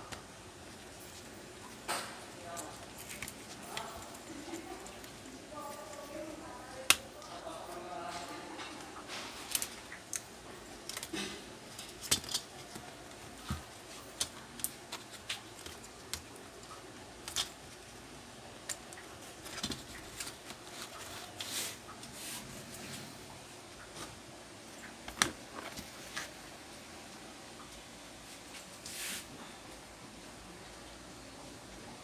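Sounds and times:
laptop parts clicking and rattling: 0:09.5 - 0:16.4.

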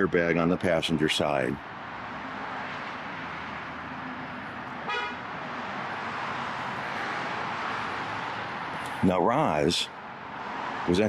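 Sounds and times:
city street traffic: 0:00.0 - 0:11.0
car horn toot: 0:04.8 - 0:05.2.

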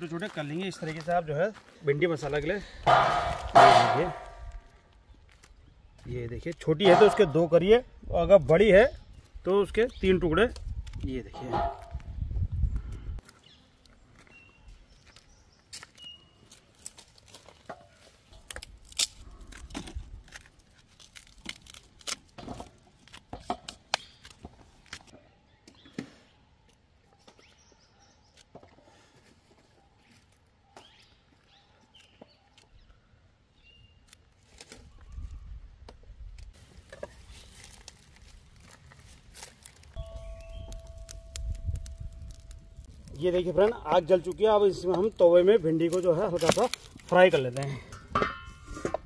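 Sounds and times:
bird chirps: 0:13.4 - 0:16.5, 0:29.9 - 0:33.0, 0:40.0 - 0:42.1.

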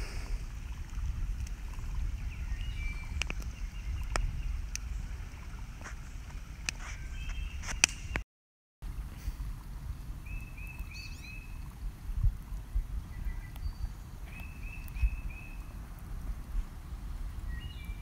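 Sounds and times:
bird singing: 0:02.2 - 0:05.2, 0:07.0 - 0:08.1, 0:10.2 - 0:11.7, 0:13.1 - 0:15.8, 0:17.5 - 0:18.0
wood fire crackling and popping: 0:03.0 - 0:04.9.

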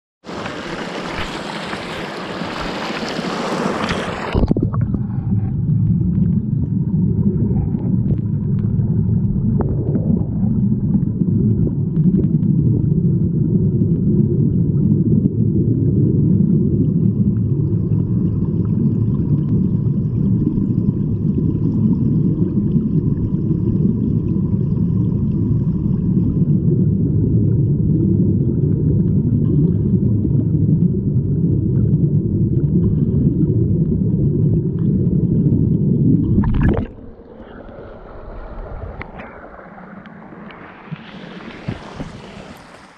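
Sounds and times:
stream rushing over gravel: 0:00.2 - 0:04.5, 0:40.2 - 0:42.9
muffled underwater current rumble: 0:00.2 - 0:42.9.

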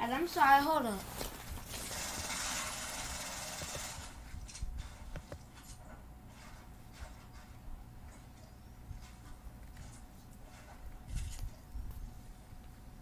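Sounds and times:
rustling handling noise: 0:00.8 - 0:02.0.

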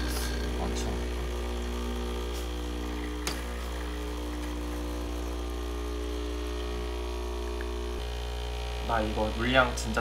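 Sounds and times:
steady electrical hum: 0:00.0 - 0:10.0.

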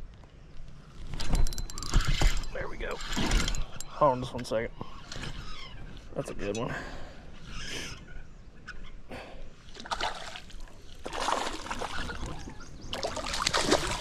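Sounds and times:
fish splashing at water surface: 0:09.8 - 0:12.4, 0:13.0 - 0:14.0.

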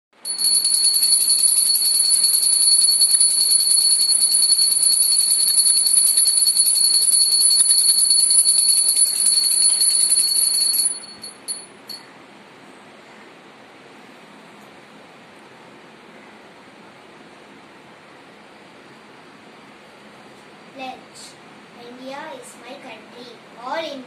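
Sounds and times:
small brass hand bell ringing: 0:00.2 - 0:12.0.

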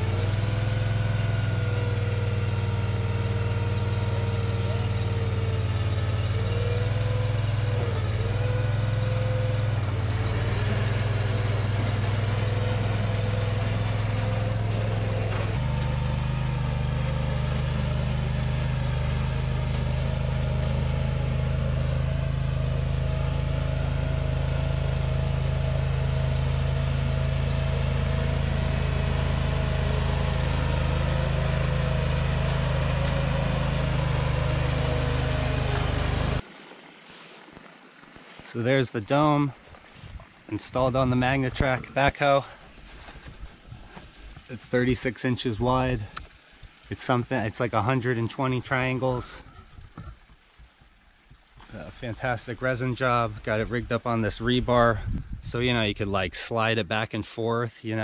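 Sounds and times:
small loader engine running: 0:00.0 - 0:36.4, 0:38.5 - 0:50.2.

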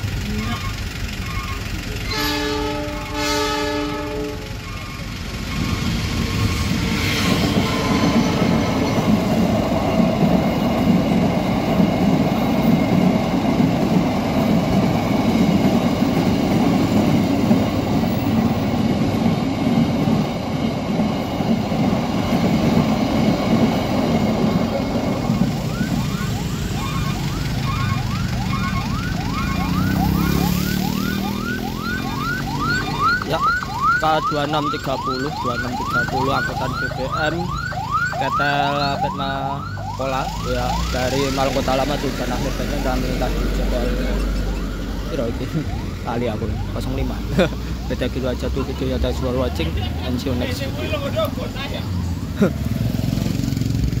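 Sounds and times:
freight train rumbling past: 0:00.0 - 0:54.0
rising electronic chirp: 0:25.1 - 0:39.7.

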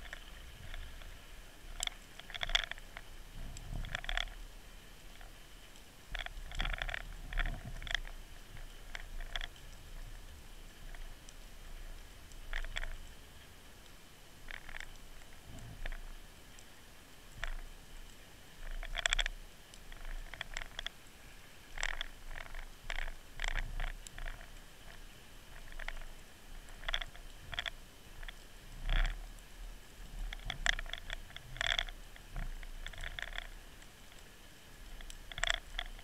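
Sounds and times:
underwater clicks and knocks: 0:00.0 - 0:04.4, 0:06.1 - 0:10.1, 0:11.8 - 0:13.1, 0:14.5 - 0:16.7, 0:17.3 - 0:17.7, 0:18.6 - 0:21.0, 0:21.6 - 0:34.3, 0:34.9 - 0:36.0.

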